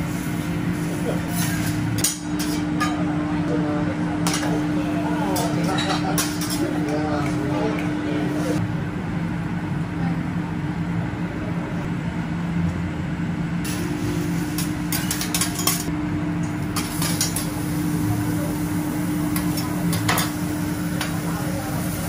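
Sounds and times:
metal spatulas scraping on griddle: 0.1s - 3.0s.

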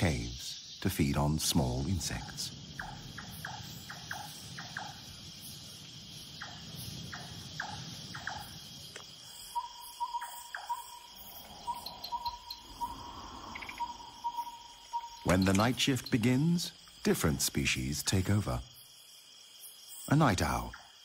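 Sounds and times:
insects droning: 0.0s - 21.0s
rapid pulsing insect call: 0.0s - 21.0s.

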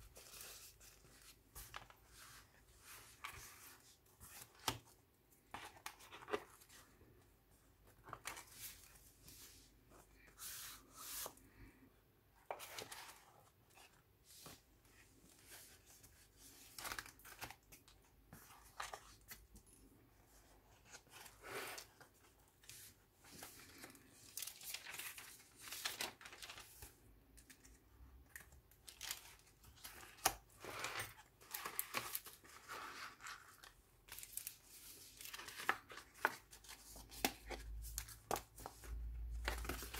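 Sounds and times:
paper pages rustling: 0.0s - 7.0s, 7.8s - 11.7s, 12.4s - 19.6s, 20.6s - 27.8s, 28.9s - 39.9s.

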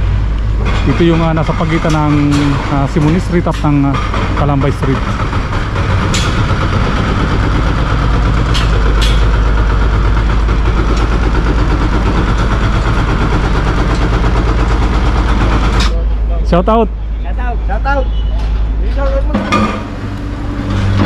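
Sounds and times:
diesel engine rumbling: 0.0s - 21.0s.

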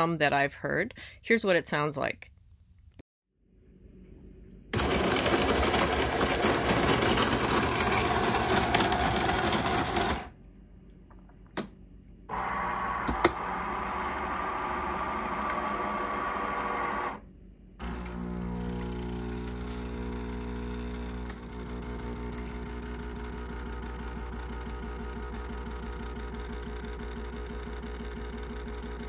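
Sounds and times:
coffee grinder grinding beans: 4.8s - 10.4s, 17.8s - 29.0s.

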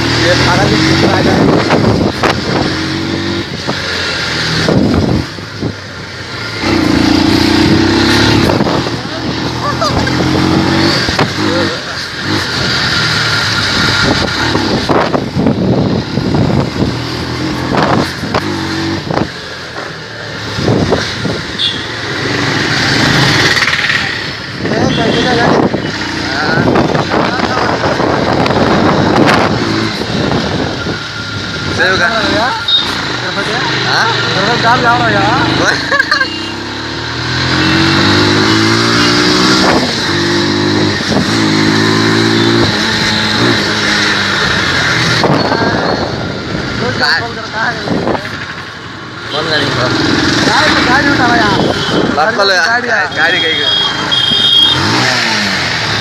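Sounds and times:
motorbike and traffic engines: 0.0s - 56.0s
wind noise: 0.9s - 3.8s, 4.5s - 5.8s, 13.7s - 19.4s, 24.6s - 31.7s, 38.0s - 43.7s, 44.5s - 46.8s.

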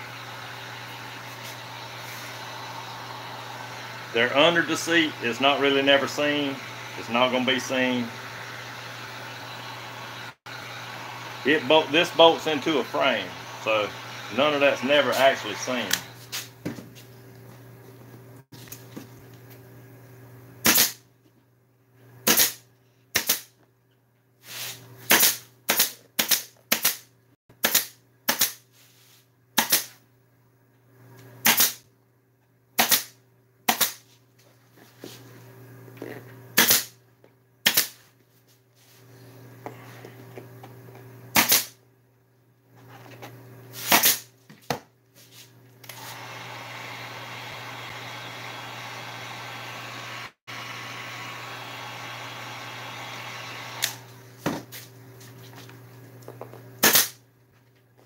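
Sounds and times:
pneumatic staple gun firing: 20.6s - 21.0s, 22.2s - 23.5s, 25.1s - 27.0s, 27.6s - 28.6s, 29.6s - 29.9s, 31.4s - 31.8s, 32.8s - 34.0s, 36.6s - 37.0s, 37.6s - 38.0s, 41.3s - 41.8s, 43.8s - 44.3s, 53.4s - 54.1s, 56.8s - 57.2s.

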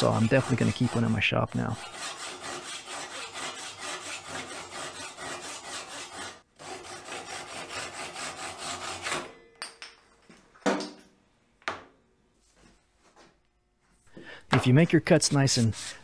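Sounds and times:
hand saw cutting wood: 0.0s - 9.3s.

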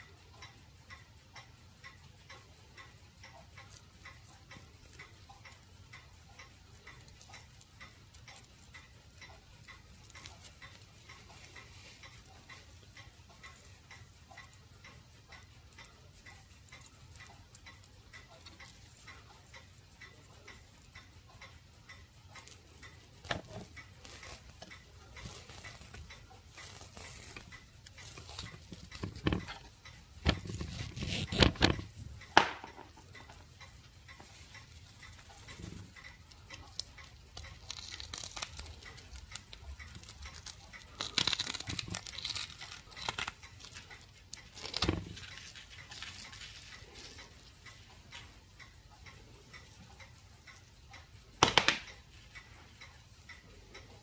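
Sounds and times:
faint regular ticking: 0.0s - 54.0s
handling clicks and scrapes: 23.2s - 32.0s
knocks and rustles: 28.5s - 29.6s.

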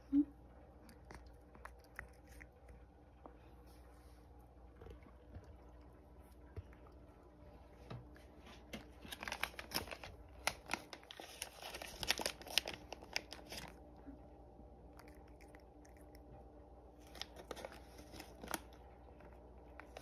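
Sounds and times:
plastic packet crinkling: 8.8s - 13.8s, 17.0s - 18.8s.

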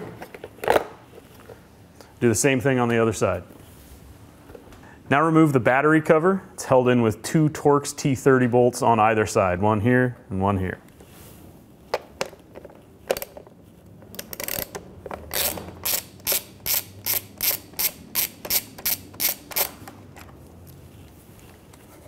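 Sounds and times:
ratchet pawl clicking: 14.2s - 19.8s.

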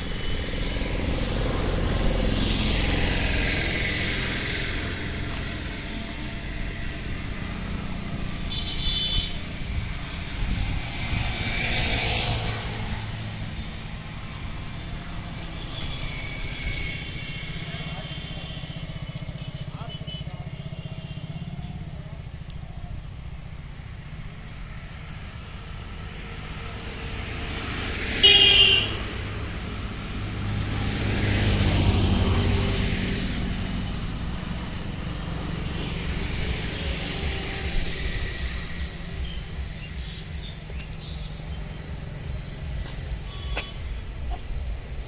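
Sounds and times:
vehicle passing: 0.0s - 19.9s, 28.9s - 45.0s
low traffic hum: 0.0s - 45.0s
vehicle horn honking: 8.5s - 9.4s, 17.1s - 21.4s, 28.2s - 29.0s, 43.2s - 44.0s.

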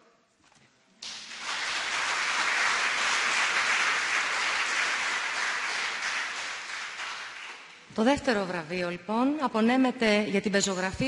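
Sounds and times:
audience applauding: 1.0s - 7.9s.

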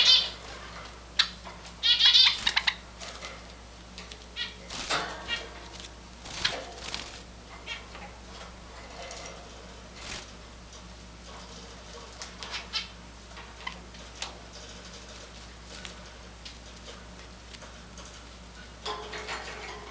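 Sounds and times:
sparrows chirping: 0.0s - 3.3s, 4.2s - 6.9s, 7.6s - 8.0s, 12.4s - 13.0s.

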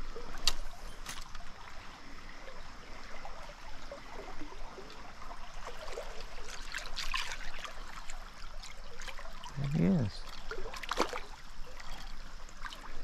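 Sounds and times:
stream water trickling: 0.0s - 13.0s.

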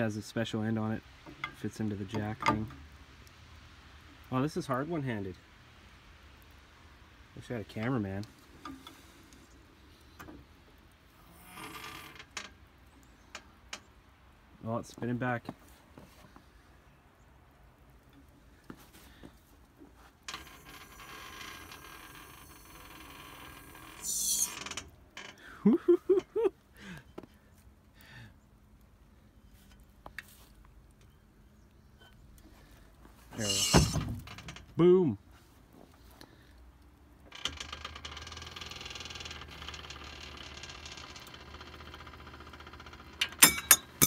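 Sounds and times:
crane creaking: 20.3s - 25.4s, 33.4s - 34.7s, 37.3s - 44.0s.

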